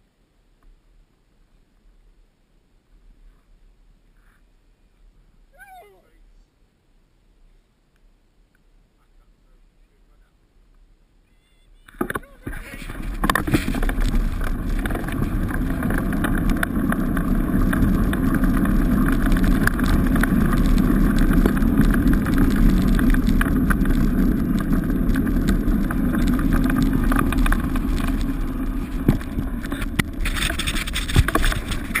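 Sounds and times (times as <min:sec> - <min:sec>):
wheels rolling over wet gravel: 0:11.9 - 0:32.0.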